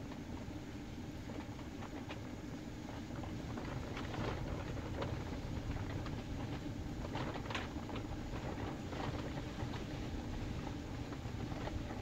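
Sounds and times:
wind and snow hitting tent: 3.0 - 12.0.

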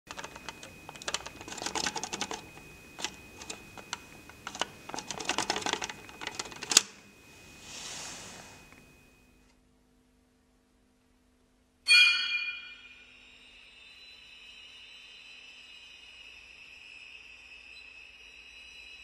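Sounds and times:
fast mechanical clicking: 0.0 - 7.0
faint high whine: 0.1 - 9.8, 11.8 - 19.0
soft hiss: 7.0 - 9.5.

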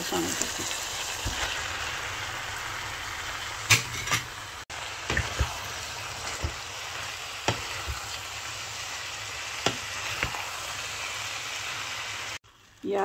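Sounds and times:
sauce sizzling in a frying pan: 0.0 - 13.0.

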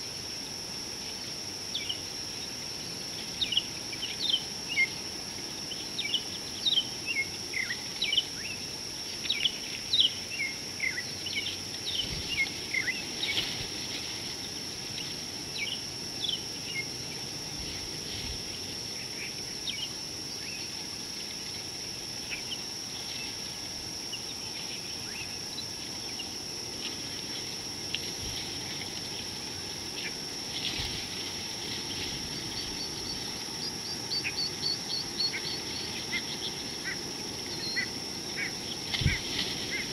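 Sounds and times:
insect buzz: 0.0 - 39.9
birds chirping: 9.2 - 13.4, 31.9 - 39.9.

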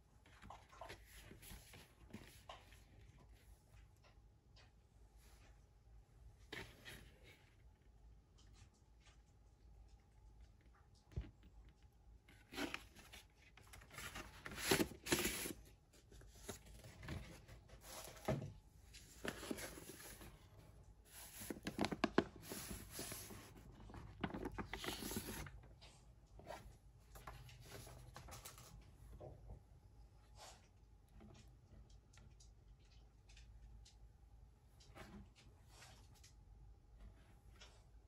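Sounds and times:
paper sleeve rustling and sliding: 12.5 - 15.6, 21.1 - 25.6.

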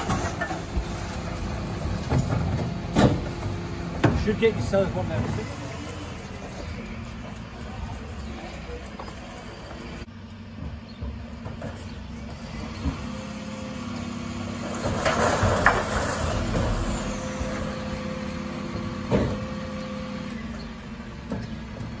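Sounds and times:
recycling clattering into hopper: 0.0 - 5.6, 14.5 - 20.6
diesel engine running: 0.0 - 22.0
bin lift clunk: 1.8 - 5.5, 14.7 - 21.6
hydraulic whine: 11.6 - 21.9.

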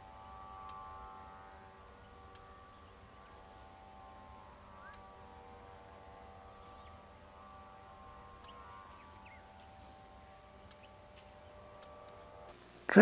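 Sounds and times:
faint chirps: 2.0 - 12.3.

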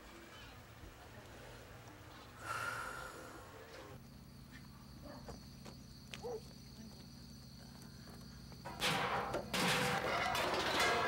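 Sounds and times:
crickets chirping: 2.2 - 11.0.

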